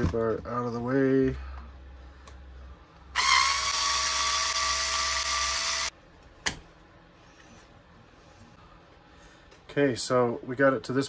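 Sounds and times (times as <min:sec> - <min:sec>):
electric screwdriver running: 0:03.2 - 0:05.9.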